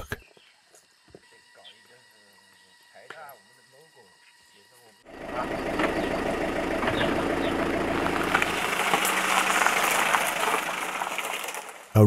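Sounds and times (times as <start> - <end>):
truck engine running: 5.0 - 12.0.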